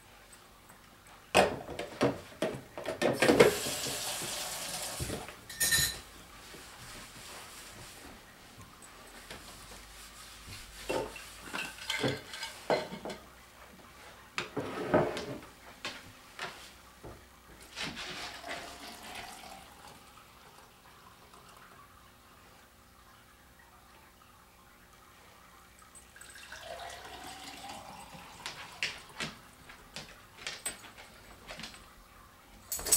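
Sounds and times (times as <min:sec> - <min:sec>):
glasses and jug clinking: 0:05.5 - 0:06.1, 0:10.9 - 0:13.2, 0:26.1 - 0:28.5, 0:32.7 - 0:32.9
juice pouring into glass: 0:18.8 - 0:21.7, 0:26.1 - 0:28.4.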